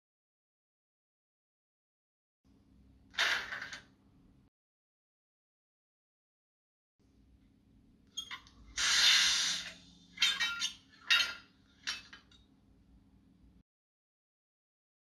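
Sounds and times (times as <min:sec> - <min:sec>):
air hisses: 0:08.8 - 0:09.9
low steady hum: 0:09.8 - 0:13.6.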